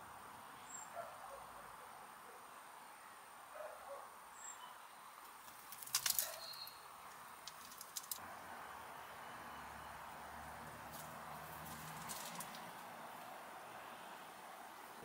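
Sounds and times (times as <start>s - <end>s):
faint garden ambience: 0.0s - 15.0s
crackling rustles in leaf litter: 5.2s - 8.3s, 10.4s - 15.0s.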